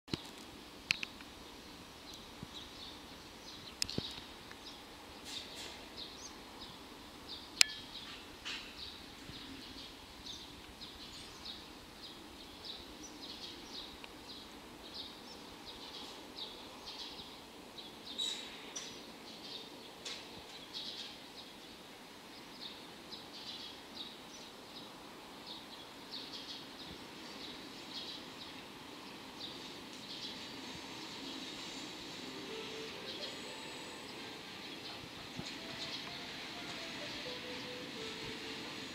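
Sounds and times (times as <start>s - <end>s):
faint outdoor background noise: 0.0s - 38.9s
small birds chirping: 0.1s - 8.2s, 32.4s - 38.9s
locomotive rumble: 31.9s - 38.9s.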